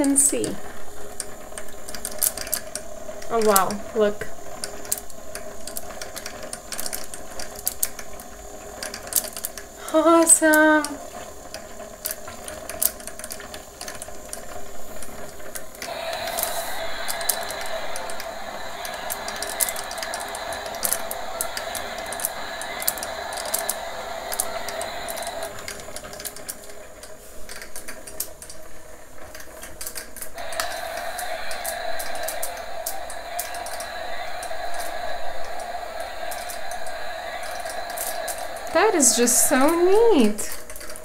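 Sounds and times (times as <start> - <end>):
rapid mechanical clicking: 0.0 - 41.0
hissing noise: 14.4 - 27.4, 30.4 - 40.7.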